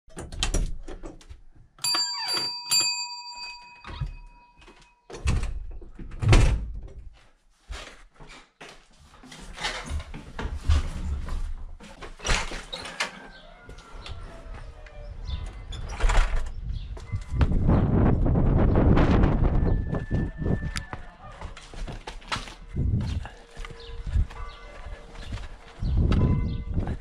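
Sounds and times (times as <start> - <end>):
knocks and rustling: 3.9 - 13.4
footsteps down wooden stairs: 6.8 - 14.8, 20.0 - 27.0
door opening: 9.2 - 17.6.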